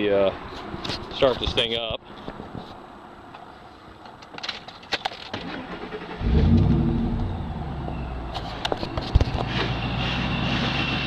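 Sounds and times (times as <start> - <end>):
truck engine starting and revving: 5.4 - 8.2.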